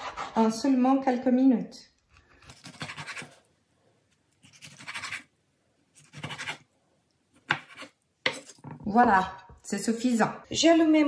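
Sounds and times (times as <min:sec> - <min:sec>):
knife scraping cutting board: 0:02.1 - 0:03.5, 0:04.4 - 0:05.3, 0:05.9 - 0:06.7, 0:07.4 - 0:08.8.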